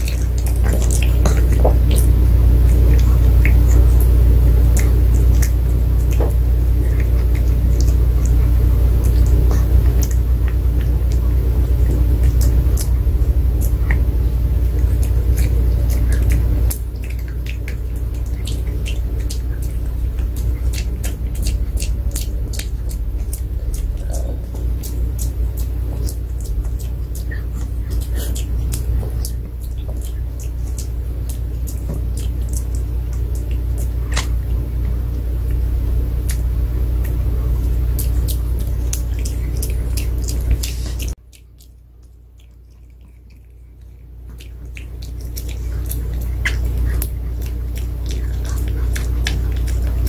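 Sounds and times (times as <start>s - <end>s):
dog chewing with crunching clicks: 0.0s - 50.0s
steady low hum: 0.0s - 50.0s
steady low rumble: 0.0s - 50.0s.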